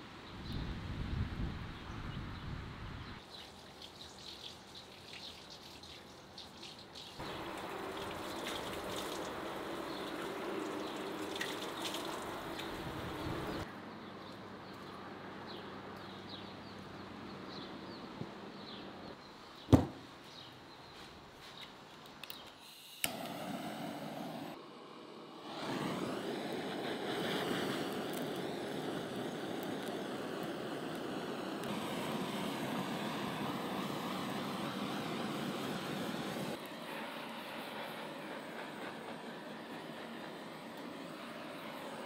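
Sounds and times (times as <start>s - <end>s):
small birds chirping: 1.6s - 22.6s
water running from tap: 3.4s - 13.5s
man splashing water on face: 3.6s - 13.0s
sharp knock: 19.7s - 20.0s.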